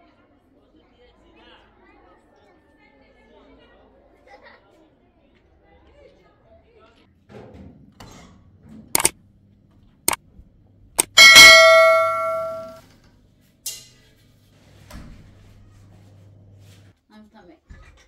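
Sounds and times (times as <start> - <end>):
metal tray ringing: 11.0 - 12.8.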